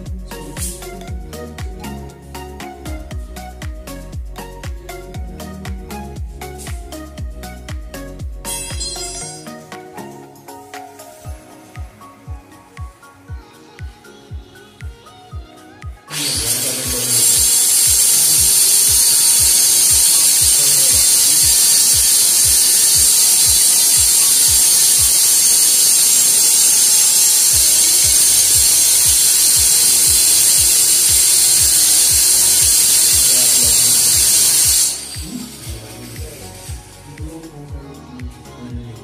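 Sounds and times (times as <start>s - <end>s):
loud high-pitched hiss: 0.0s - 1.4s, 6.4s - 9.7s, 16.1s - 37.8s
music with thumping beat: 0.0s - 39.0s.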